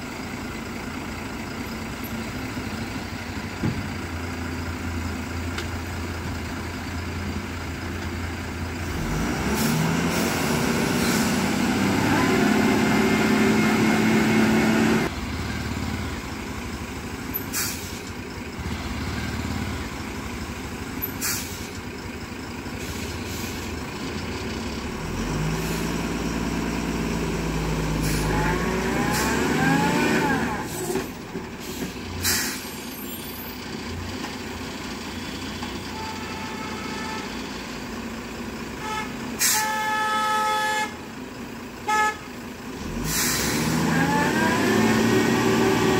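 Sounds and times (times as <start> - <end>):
lorry diesel engine labouring: 0.0 - 45.9
air brake hisses: 17.4 - 18.1, 21.0 - 21.8, 31.6 - 33.3, 39.4 - 39.8, 43.0 - 43.7.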